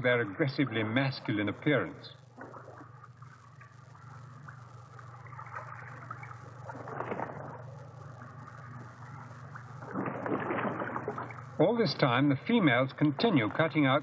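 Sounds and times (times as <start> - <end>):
low hum: 0.0 - 14.0
stream water gurgling: 5.2 - 7.6, 9.8 - 11.9.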